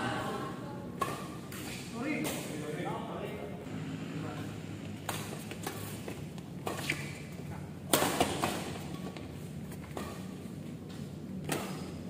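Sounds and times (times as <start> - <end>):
steady low hum: 0.0 - 12.0
rackets striking shuttlecock: 1.0 - 2.5, 5.0 - 12.0.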